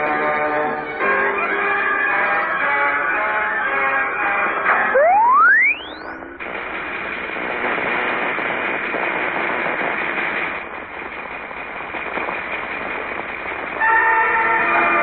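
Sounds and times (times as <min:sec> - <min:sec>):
cartoon machine hissing and crackling: 0:05.0 - 0:15.0.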